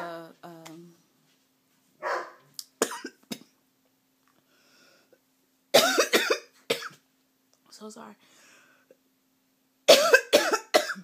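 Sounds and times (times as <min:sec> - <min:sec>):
woman coughing: 0:02.8 - 0:03.6, 0:05.8 - 0:07.0, 0:09.9 - 0:11.0.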